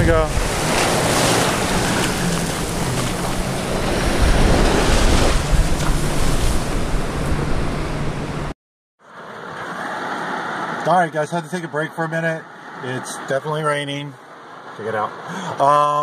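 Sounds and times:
surf breaking on beach: 0:00.0 - 0:07.8
gusting wind buffeting microphone: 0:00.0 - 0:08.5.

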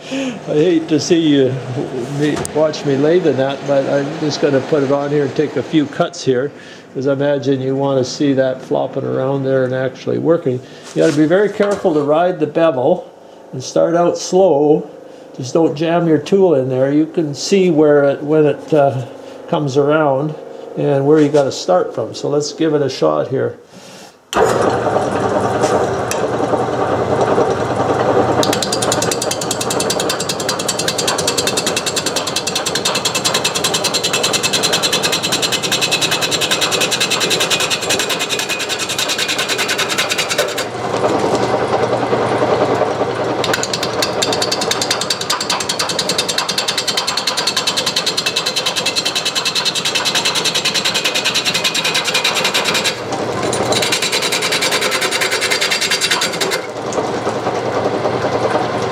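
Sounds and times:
wood lathe running: 0:00.0 - 0:06.1, 0:24.4 - 0:58.9
gouge rattling against wood: 0:28.4 - 0:41.4, 0:43.4 - 0:56.7.

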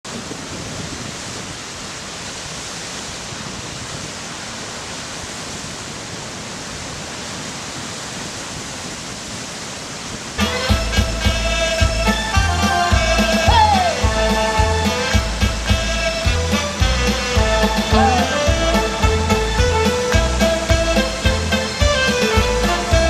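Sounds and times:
steady rushing hiss: 0:00.1 - 0:23.0
trot song with saxophone: 0:10.4 - 0:23.0.

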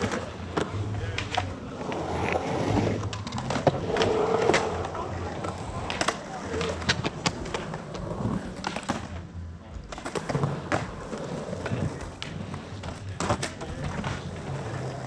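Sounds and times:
skateboard wheels rolling on concrete: 0:00.0 - 0:15.0.

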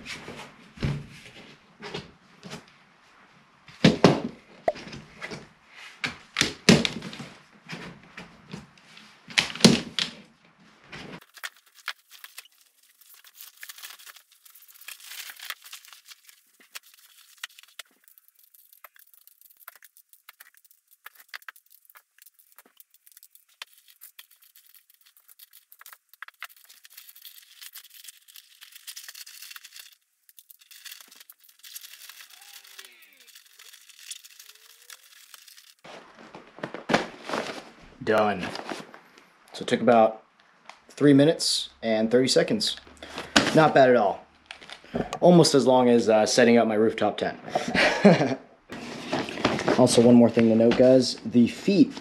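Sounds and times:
nylon fabric rustling: 0:10.8 - 0:37.8.

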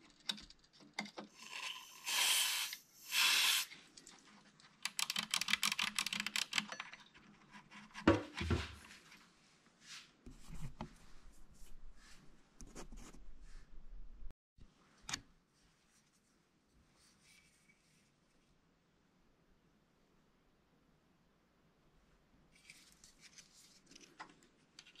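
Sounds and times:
aerosol spray hiss: 0:01.8 - 0:03.7
rapid small clicks: 0:04.8 - 0:07.0.

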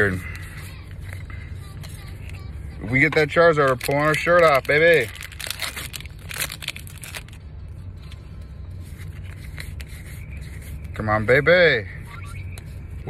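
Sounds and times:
foil wrapper tearing and crinkling: 0:03.6 - 0:07.4.

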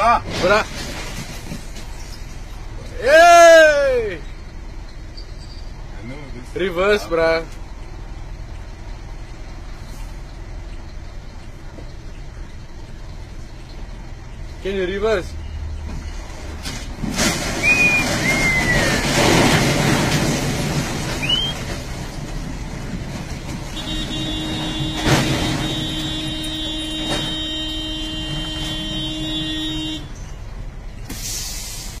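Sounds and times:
street noise: 0:00.0 - 0:32.0
truck engine running: 0:00.0 - 0:32.0
short whistles: 0:17.6 - 0:18.9, 0:21.2 - 0:21.6
vehicle horn steady note: 0:23.8 - 0:30.1.

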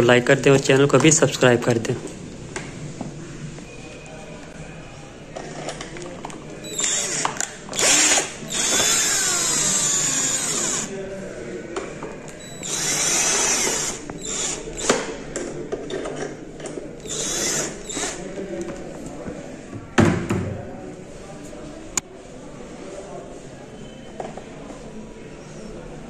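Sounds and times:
cordless drill whining: 0:06.6 - 0:10.9, 0:12.5 - 0:15.0, 0:17.0 - 0:18.2.

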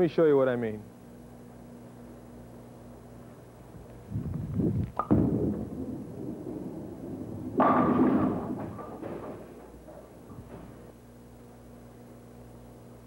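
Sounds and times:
bowling ball rolling: 0:04.2 - 0:11.0
bowling ball thud on lane: 0:05.0 - 0:10.9
bowling pins clattering: 0:05.0 - 0:10.9.

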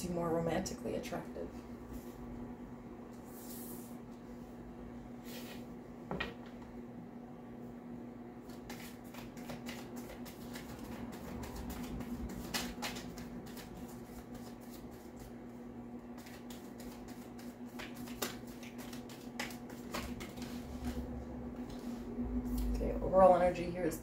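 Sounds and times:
cards being shuffled: 0:08.5 - 0:15.4, 0:16.1 - 0:21.0.

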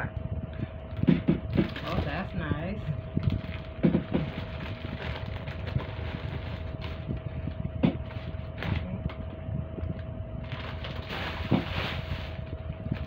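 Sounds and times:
low rumble: 0:00.0 - 0:13.0
steady hum: 0:00.0 - 0:13.0
handling knocks and bumps: 0:01.0 - 0:02.4, 0:10.5 - 0:13.0.

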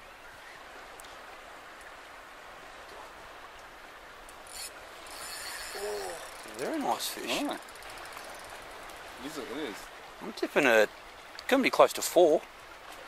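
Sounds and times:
choppy water around boat: 0:00.0 - 0:13.0
wind hissing: 0:04.4 - 0:09.8.

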